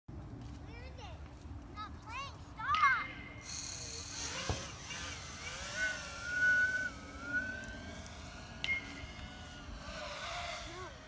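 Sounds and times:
drone motors whining: 3.2 - 11.0.

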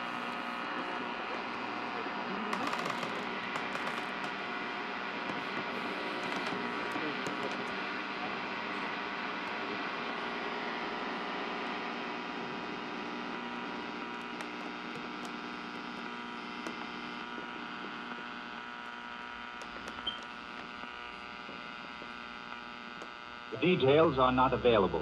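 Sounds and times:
electric hum of held tones: 0.0 - 25.0.

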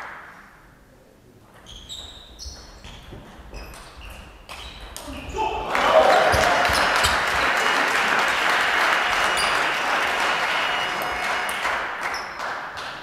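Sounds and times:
spectators clapping: 0.0 - 0.4, 5.6 - 13.0.

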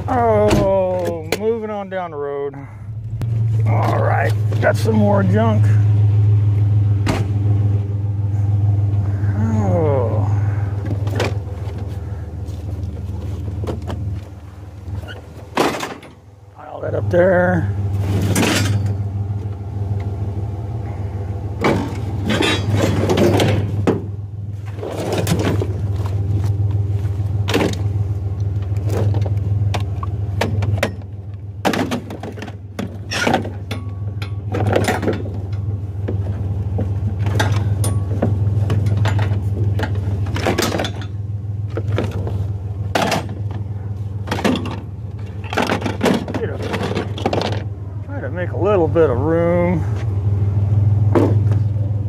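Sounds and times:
steady low hum: 0.0 - 52.0
scrap metal clattering: 17.9 - 19.0, 21.6 - 26.3, 41.8 - 47.7.

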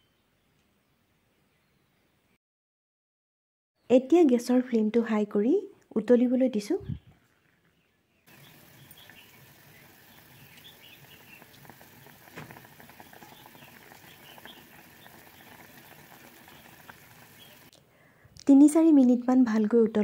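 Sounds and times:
gravy bubbling: 8.3 - 17.7
small pops and crackles: 8.3 - 17.8.

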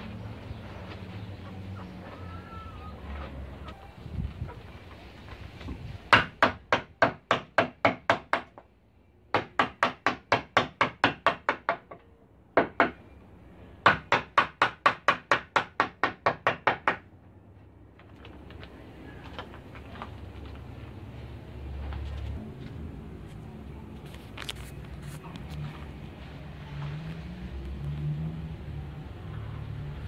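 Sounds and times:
mallet striking chisel into wood: 9.3 - 12.0.

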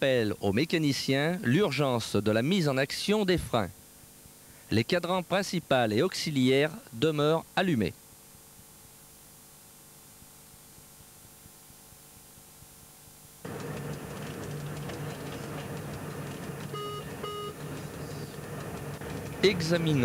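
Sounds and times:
electric train running: 13.5 - 20.0
short alarm beeps: 16.7 - 17.6.

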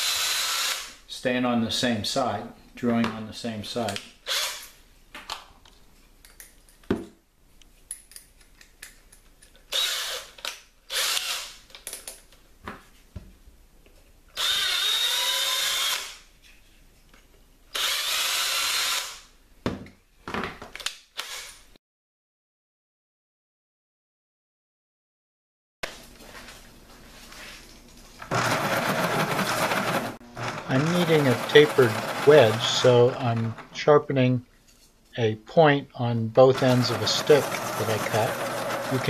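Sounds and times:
cordless drill drilling plastic: 0.0 - 0.9, 9.7 - 11.5, 14.4 - 16.2, 17.8 - 19.2, 28.3 - 33.6, 36.6 - 39.0.

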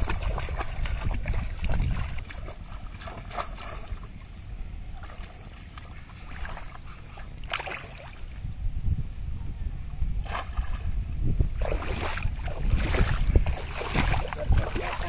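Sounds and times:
sharp splash: 0.0 - 4.1, 5.0 - 8.2, 10.2 - 10.9, 11.6 - 15.0
feet wading through water: 0.0 - 8.4, 10.2 - 15.0.

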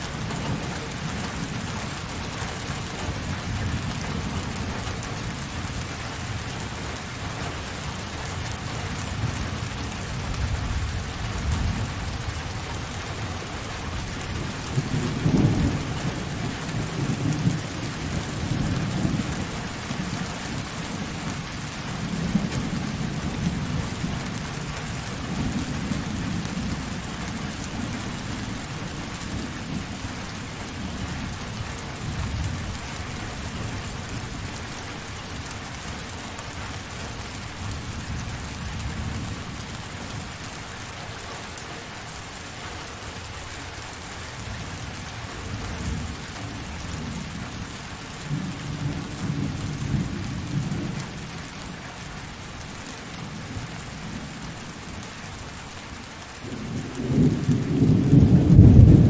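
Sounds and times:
thunder rumbling: 9.2 - 34.6, 56.4 - 59.0.

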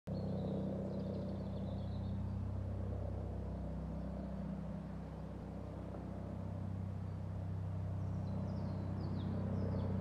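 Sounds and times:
distant helicopter drone: 0.1 - 10.0.

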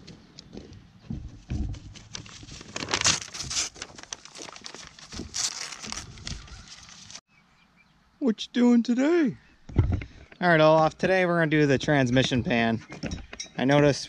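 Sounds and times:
paper rustling and tearing: 1.7 - 7.2.

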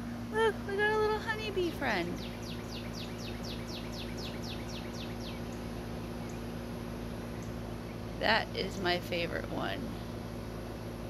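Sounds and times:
air-conditioner hum: 0.0 - 11.0
songbird whistled notes: 2.2 - 5.6.

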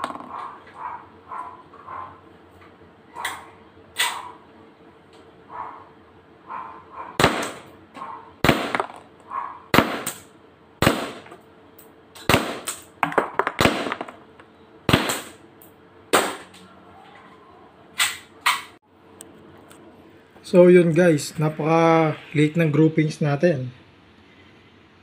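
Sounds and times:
airsoft pistol shots: 4.0 - 4.2, 7.2 - 7.7, 8.4 - 9.0, 9.7 - 11.3, 12.2 - 12.9, 13.6 - 14.1, 14.9 - 15.4, 16.1 - 16.5.

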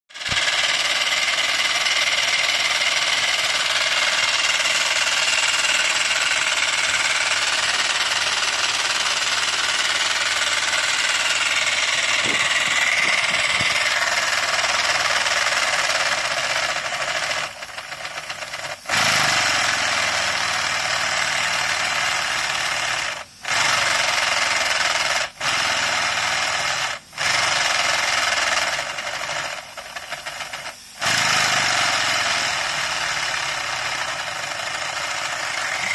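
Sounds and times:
model locomotive hissing chuff: 0.1 - 35.9.

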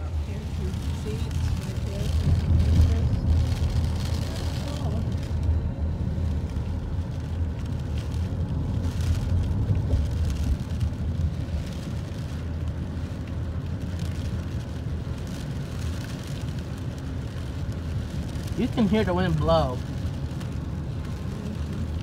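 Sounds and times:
rain patter on car: 0.0 - 22.0
wind and road noise in car: 0.0 - 22.0.

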